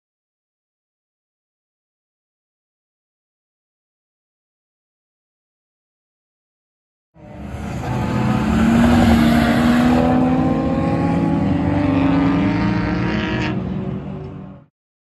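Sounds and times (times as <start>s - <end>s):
car engine at full throttle passing: 7.2s - 14.7s.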